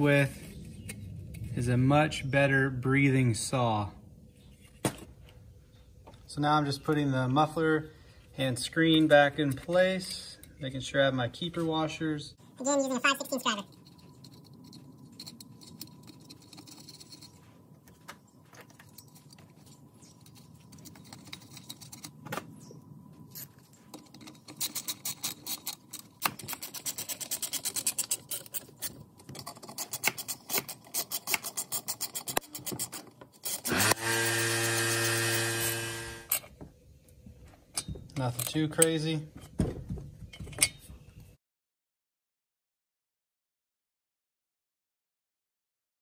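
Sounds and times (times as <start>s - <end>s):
steady whir: 33.5s - 36.5s.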